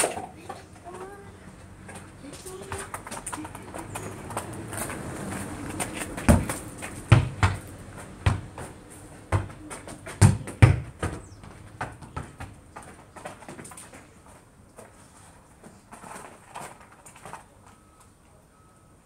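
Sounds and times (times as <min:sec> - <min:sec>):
footsteps: 0:00.4 - 0:16.9
ball bouncing on gravel: 0:01.8 - 0:14.2
ball thudding against wall: 0:06.1 - 0:12.6.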